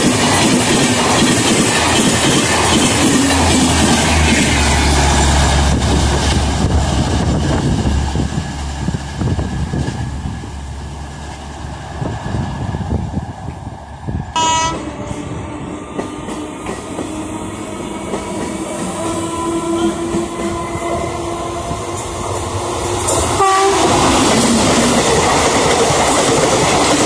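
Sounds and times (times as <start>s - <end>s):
train coaches clattering over rails: 0.0s - 10.4s, 14.6s - 27.0s
distant approaching train: 0.0s - 27.0s
brief horn-like tone: 14.4s - 15.7s, 19.0s - 21.7s.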